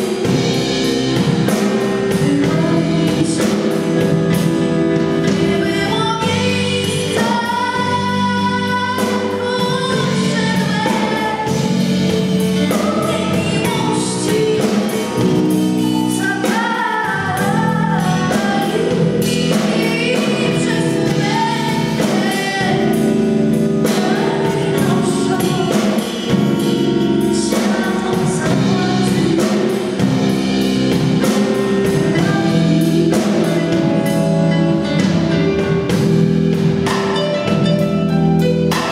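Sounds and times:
woman singing into microphone: 0.0 - 35.5
live pop band with drums: 0.0 - 38.9.

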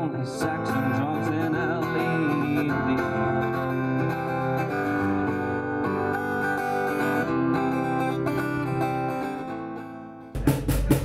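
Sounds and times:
acoustic guitar strumming: 0.0 - 11.0.

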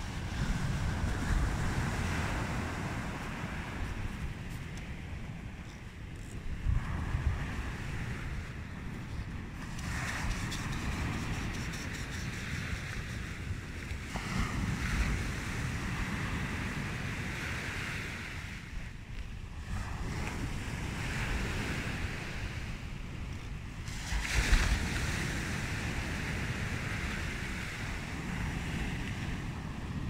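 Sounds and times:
waves washing up pebble beach: 0.0 - 5.2, 9.4 - 18.7, 23.8 - 30.0
wind buffeting microphone: 0.0 - 30.0.

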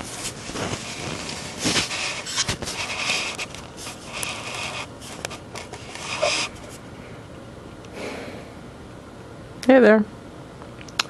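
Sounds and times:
fabric rustling and rubbing: 0.0 - 6.8.

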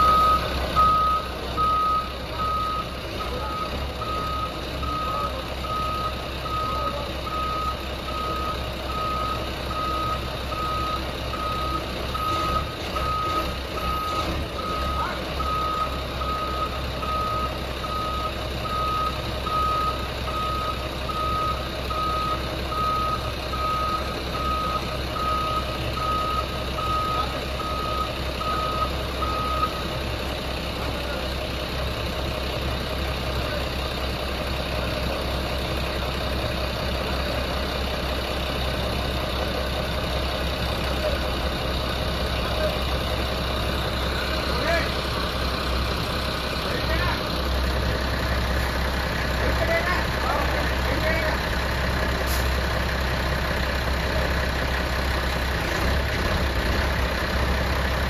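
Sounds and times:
reversing alarm beeping: 0.0 - 30.0
wheel loader engine running: 0.0 - 58.0.

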